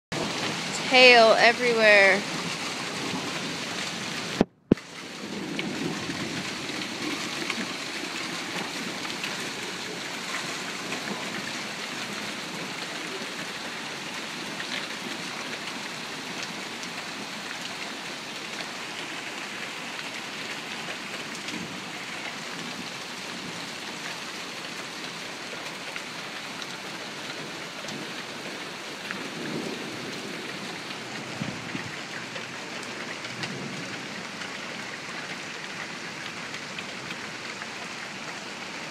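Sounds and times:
hail and rain falling: 0:00.2 - 0:38.9
faint hail ticks: 0:04.2 - 0:38.7.

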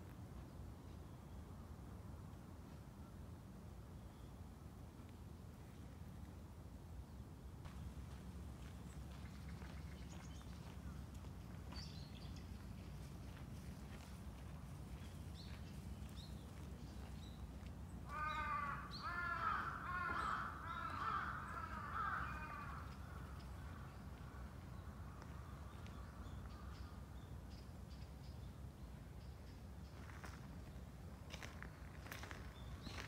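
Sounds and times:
crow cawing: 0:18.1 - 0:23.3.

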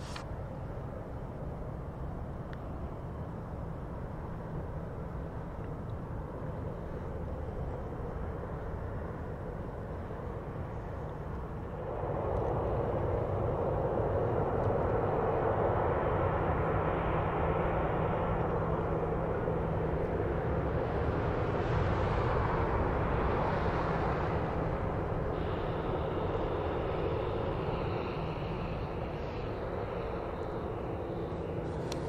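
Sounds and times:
jet engines rushing: 0:00.0 - 0:32.0
low steady hum: 0:00.0 - 0:32.0.

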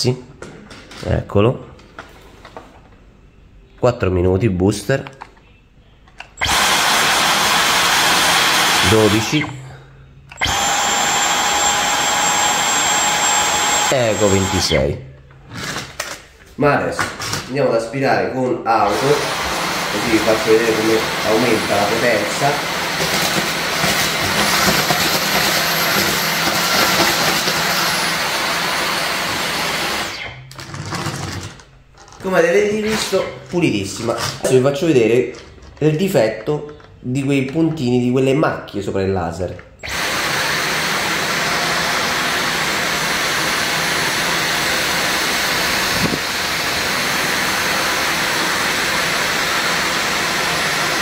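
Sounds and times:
stick vacuum running: 0:06.4 - 0:14.8, 0:18.8 - 0:31.7, 0:39.8 - 0:51.0.

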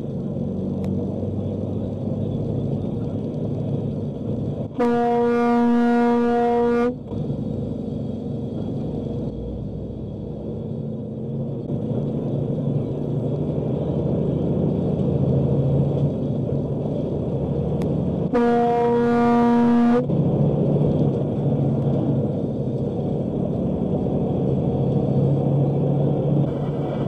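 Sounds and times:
road noise: 0:00.0 - 0:27.0
truck engine running: 0:00.0 - 0:27.0
truck horn blast: 0:04.8 - 0:07.0, 0:18.3 - 0:20.1.

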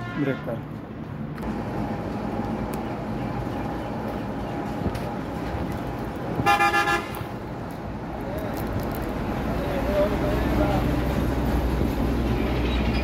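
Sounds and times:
vehicle horn honking: 0:00.0 - 0:00.6, 0:06.4 - 0:07.2
street traffic noise: 0:00.0 - 0:13.0.

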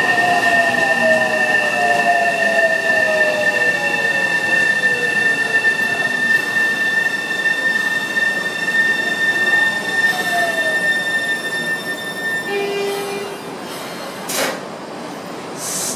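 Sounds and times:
train brakes squealing: 0:00.0 - 0:14.4.

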